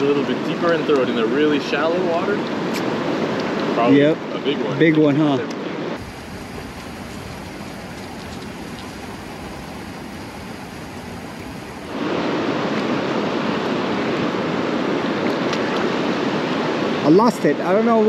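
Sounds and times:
stream water flowing: 0.0s - 18.0s.

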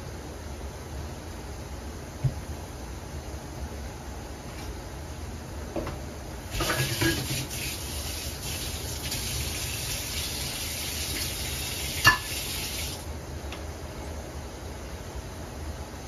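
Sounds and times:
pork sizzling in oil: 6.5s - 13.1s.

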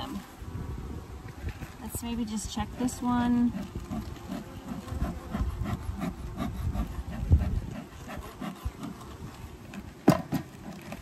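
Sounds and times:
wood scraping and rubbing: 3.5s - 11.0s.

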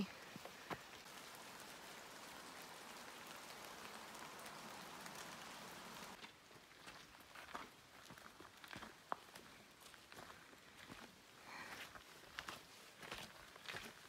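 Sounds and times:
light rain hissing: 0.0s - 7.2s
rain drips: 0.0s - 9.5s.

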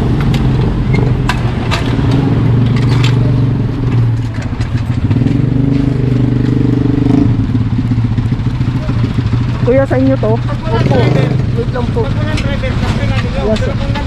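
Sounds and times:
metallic clicks and clacks: 0.1s - 10.7s
engine idling: 6.2s - 14.0s.

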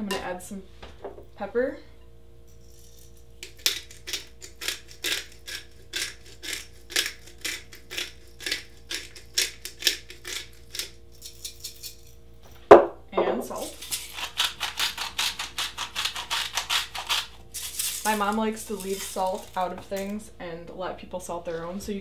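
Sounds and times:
pepper grinder crunching: 2.7s - 12.2s, 13.5s - 20.2s.

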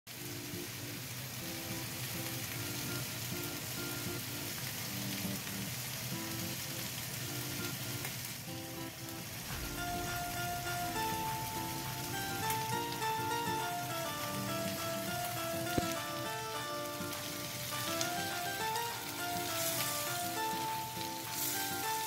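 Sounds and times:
fish frying in oil: 0.1s - 22.0s
repeating background music melody: 8.5s - 22.0s.

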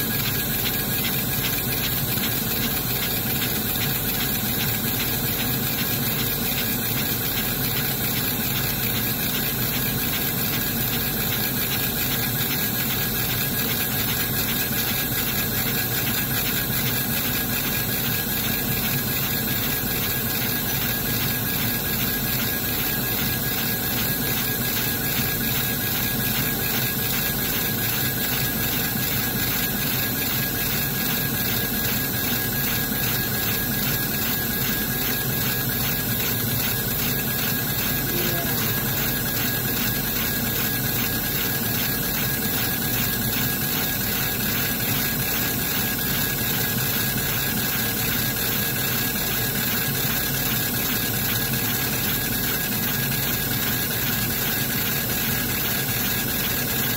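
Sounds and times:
laser engraver whirring: 0.0s - 56.9s
faint high tone: 38.0s - 39.3s.

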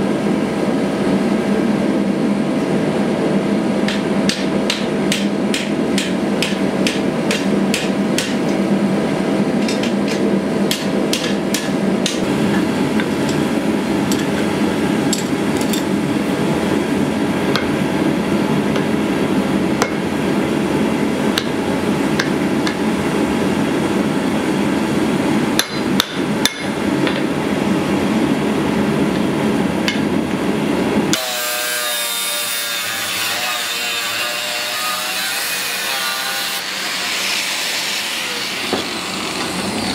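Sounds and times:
hammer striking steel on anvil: 3.8s - 8.6s, 9.6s - 13.4s, 19.8s - 20.0s, 25.6s - 27.3s
angle grinder cutting steel: 31.2s - 39.9s.

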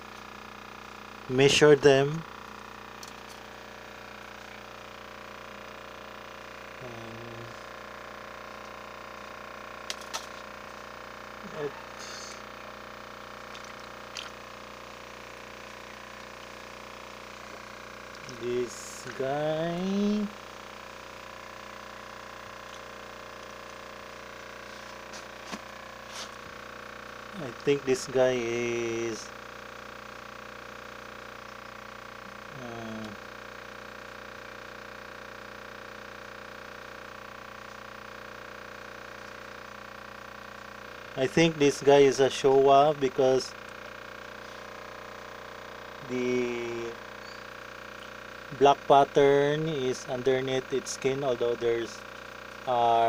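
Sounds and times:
steady mechanical hum: 0.0s - 53.0s
hands splashing in water: 13.4s - 14.4s
small splashes: 13.4s - 14.5s.

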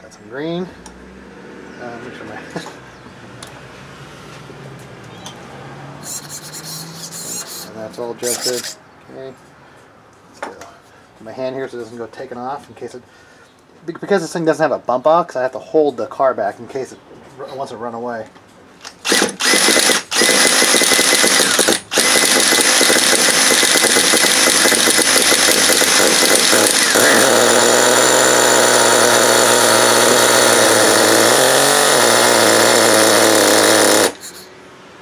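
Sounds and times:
cordless drill cranking engine: 6.0s - 8.8s, 18.8s - 34.5s.

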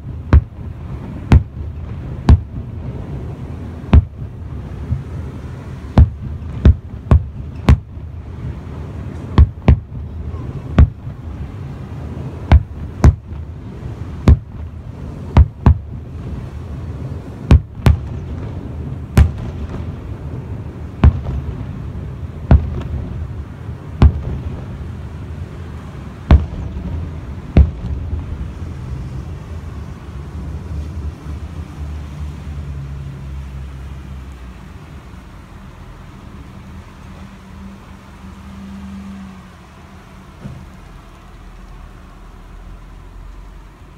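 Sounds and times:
distant firework bangs: 0.0s - 25.0s, 26.2s - 28.5s
steady low rumble: 0.0s - 43.9s.

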